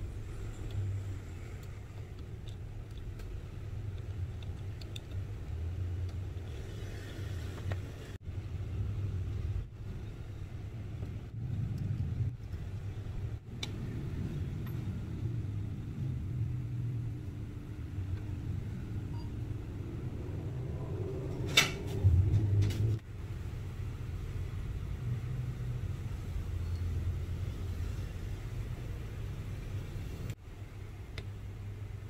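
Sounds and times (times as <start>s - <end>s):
low rumble: 8.3s - 23.0s.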